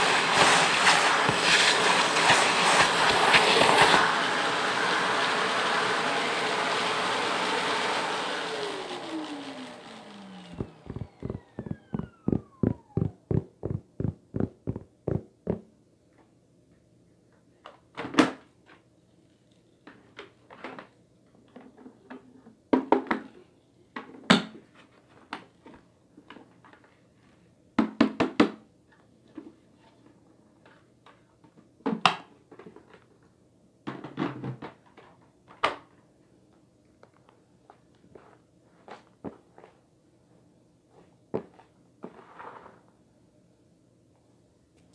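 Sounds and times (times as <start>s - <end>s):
vacuum cleaner motor whine: 0.0s - 14.9s.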